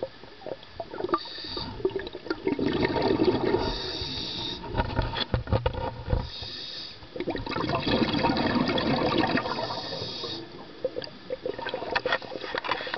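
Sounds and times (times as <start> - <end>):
regulator bubbling exhalations: 1.0 - 4.9, 7.1 - 12.0
hissing regulator inhalation: 1.2 - 1.9, 3.5 - 4.7, 6.2 - 7.0, 9.6 - 10.6.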